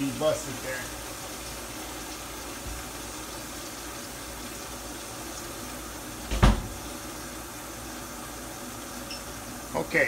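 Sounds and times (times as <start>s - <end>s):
faucet running into sink: 0.0s - 7.3s
loud thump: 6.3s - 6.8s.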